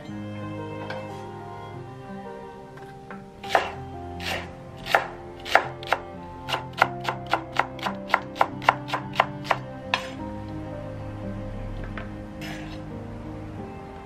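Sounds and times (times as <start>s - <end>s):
knife chopping green onion: 3.4s - 10.1s.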